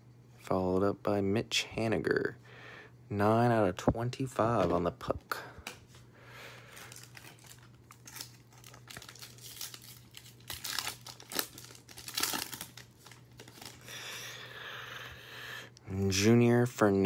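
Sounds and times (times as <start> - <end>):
foil wrapper crinkling and tearing: 6.6 - 14.1.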